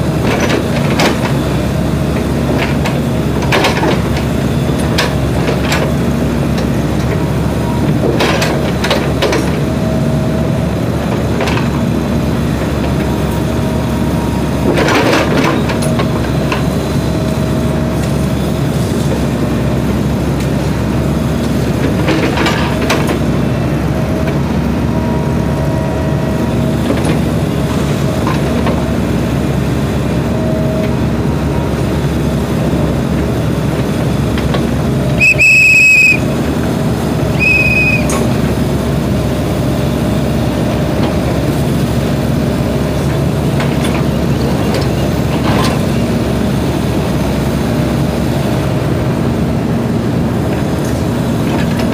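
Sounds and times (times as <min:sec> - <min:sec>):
excavator diesel engine running: 0:00.0 - 0:51.9
hydraulics whining: 0:34.9 - 0:38.6.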